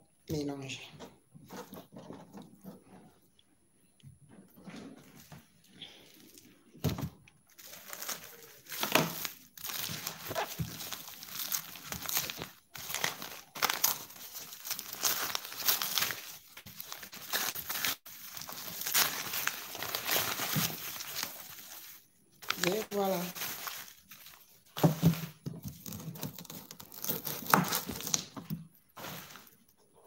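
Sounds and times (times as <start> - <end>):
plastic wrapping crinkling: 7.5 - 29.9.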